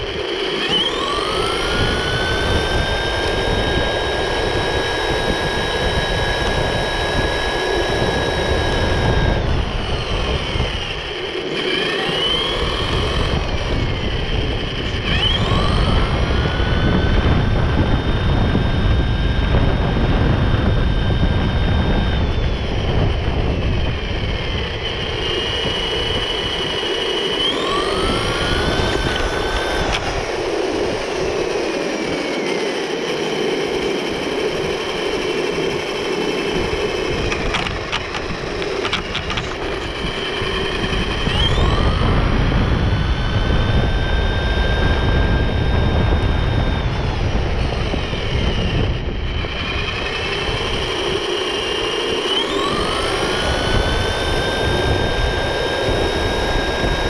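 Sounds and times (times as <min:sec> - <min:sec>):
wind on microphone: 0:00.0 - 0:32.5, 0:33.6 - 0:57.0
rc buggy motor whine: 0:00.0 - 0:57.0
tyres rumbling on asphalt: 0:33.7 - 0:54.1.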